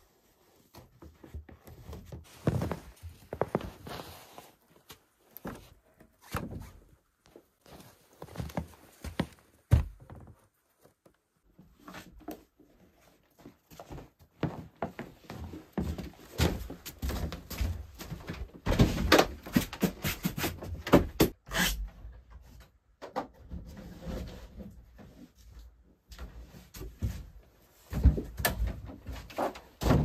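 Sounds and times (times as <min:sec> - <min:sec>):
footsteps on wooden floorboards: 0:07.3 - 0:10.4, 0:13.7 - 0:18.9.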